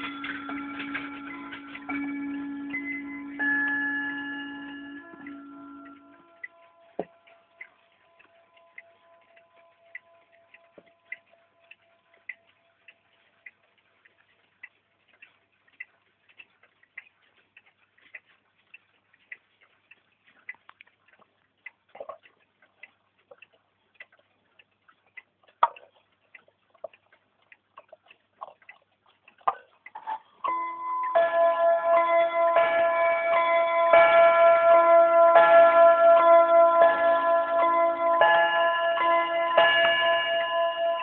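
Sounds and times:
ringing tone: 0.0s - 7.2s
clock striking on a gong: 0.0s - 11.3s, 30.5s - 41.0s
wall clock ticking: 0.0s - 41.0s.

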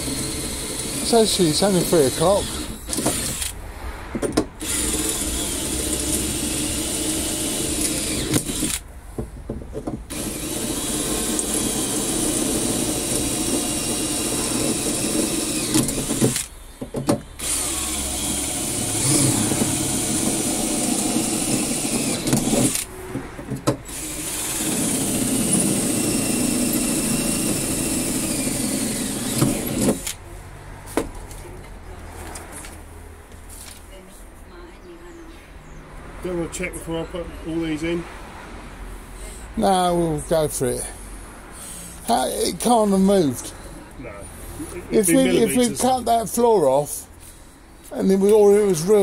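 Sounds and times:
cordless drill drilling: 0.0s - 3.6s, 4.6s - 8.8s, 10.1s - 16.6s, 17.4s - 22.9s, 23.8s - 30.2s, 44.9s - 46.8s.

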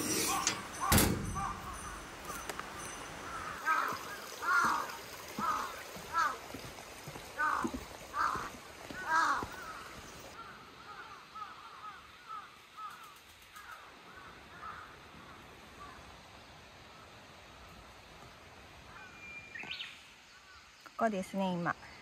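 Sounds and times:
crows cawing: 0.2s - 6.5s, 7.4s - 16.0s
mountain stream rushing: 1.4s - 10.4s.

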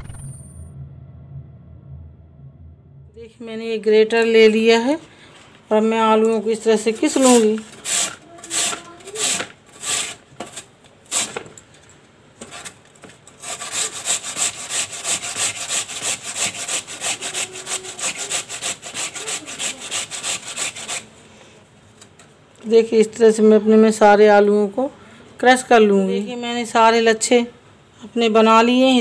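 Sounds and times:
potato grated on metal grater: 6.8s - 11.4s, 13.4s - 21.2s.

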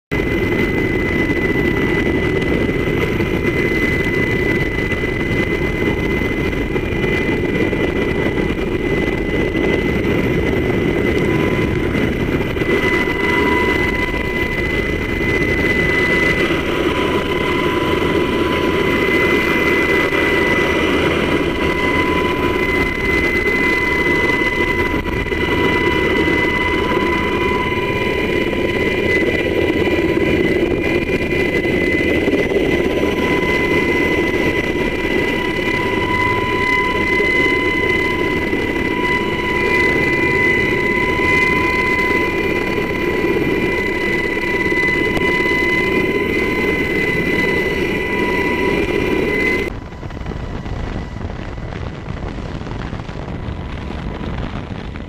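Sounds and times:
constant high whine: 0.1s - 55.0s
helicopter engines and rotor: 0.1s - 55.0s.

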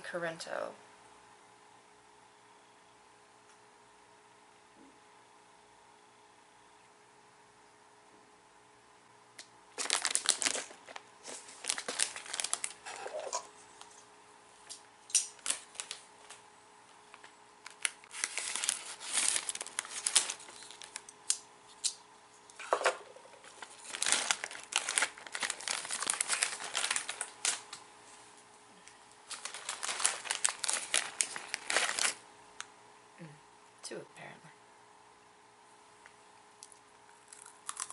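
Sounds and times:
plastic snack bag crinkling: 9.7s - 14.0s, 15.2s - 16.4s, 17.1s - 27.8s, 29.2s - 32.2s, 37.2s - 37.9s.

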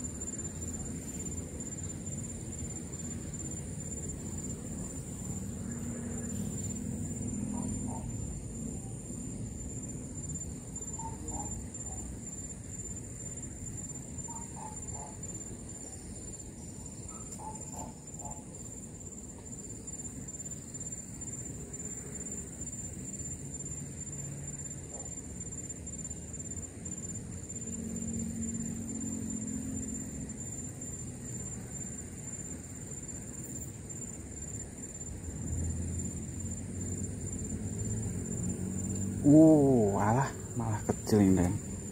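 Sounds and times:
high-pitched insect drone: 0.0s - 41.9s.

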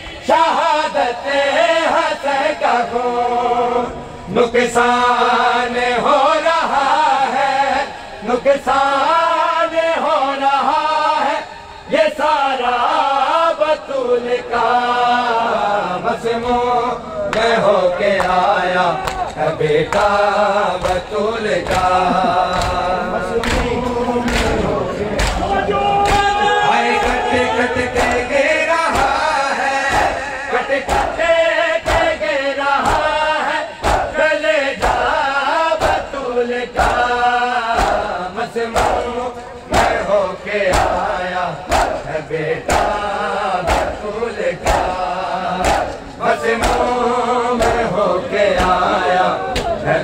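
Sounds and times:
crowd singing along: 0.0s - 50.0s
men chanting a lament: 0.0s - 50.0s
rhythmic chest-beating: 12.5s - 50.0s.

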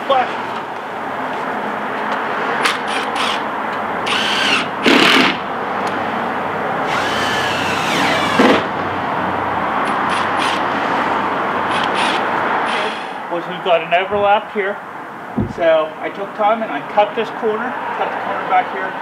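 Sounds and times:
power drill driving screws: 2.7s - 3.4s, 4.0s - 5.4s, 6.9s - 8.7s, 10.1s - 10.6s, 11.7s - 13.2s.

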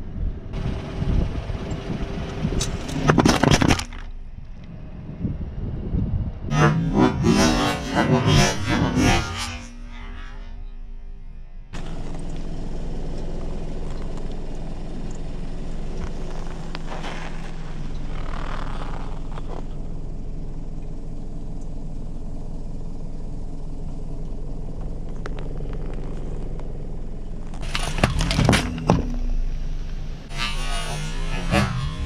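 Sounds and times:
car engine running: 0.0s - 32.0s.

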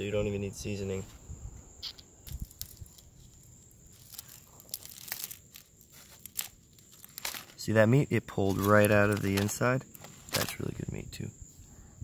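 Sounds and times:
crab shell cracking: 2.2s - 7.6s
aluminium foil crinkling: 2.3s - 10.8s.

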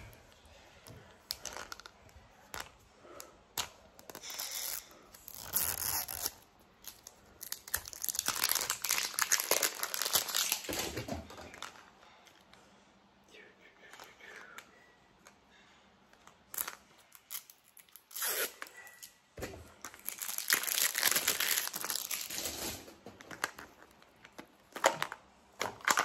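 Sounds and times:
plastic wrapper tearing and crinkling: 4.0s - 11.8s, 16.5s - 19.1s, 19.8s - 23.9s, 24.7s - 26.0s.

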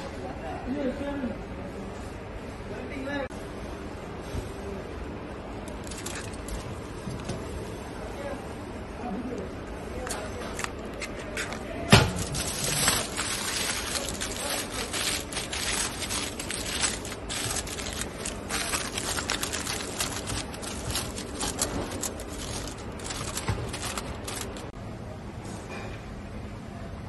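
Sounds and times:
aluminium foil crinkling: 5.7s - 6.9s, 10.0s - 24.8s.

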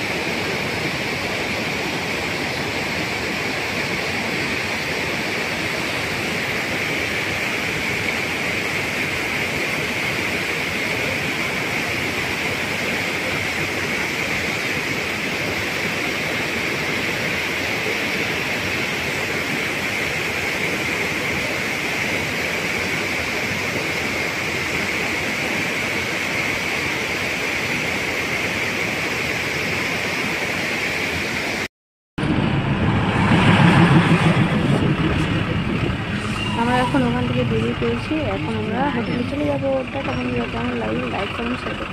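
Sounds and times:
stream rushing over boulders: 0.0s - 31.7s
low engine rumble: 32.2s - 41.9s.

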